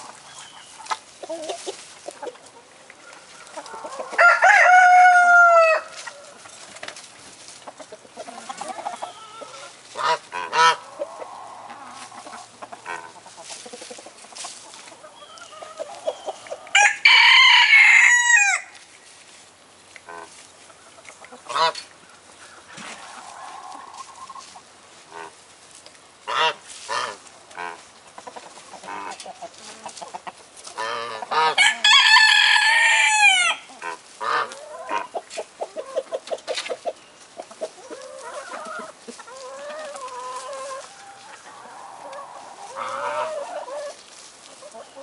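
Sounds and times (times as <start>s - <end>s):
chickens clucking: 0.0s - 45.0s
long loud chicken calls: 2.6s - 6.4s, 8.2s - 13.2s, 15.0s - 18.8s, 30.8s - 36.2s, 37.7s - 45.0s.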